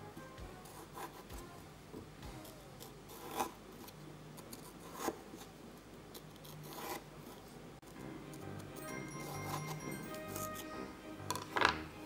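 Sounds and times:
knife rasping on carrot: 2.4 - 3.6, 6.2 - 7.0.

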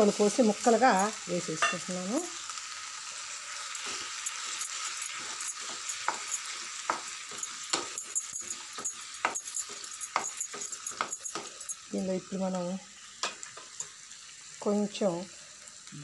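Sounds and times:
food sizzling in a pan: 0.0 - 16.0
spatula scraping and tapping pan: 3.6 - 11.9, 13.2 - 13.9.

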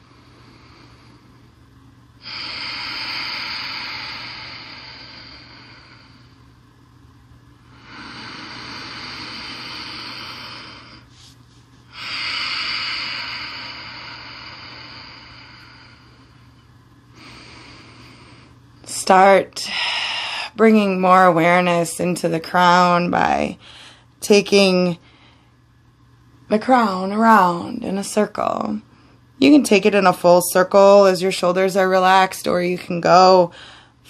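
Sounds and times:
woman breathing deeply: 0.0 - 1.6, 2.2 - 6.6, 7.6 - 18.7, 19.6 - 20.6, 23.2 - 24.2, 25.0 - 25.7, 33.5 - 34.0.

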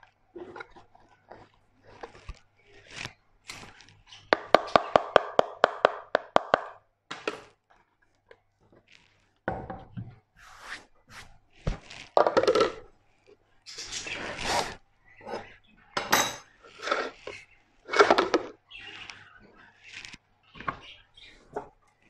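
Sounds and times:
scraping and rustling: 0.0 - 4.3, 10.2 - 15.8, 16.4 - 22.0.

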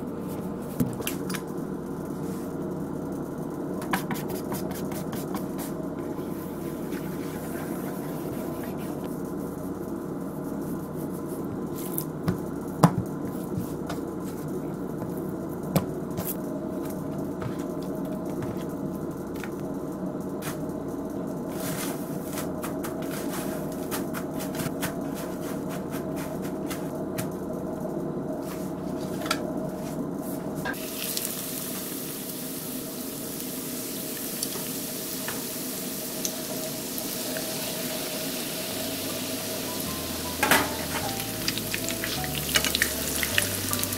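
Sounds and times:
cutlets sizzling in hot oil: 30.8 - 43.9.

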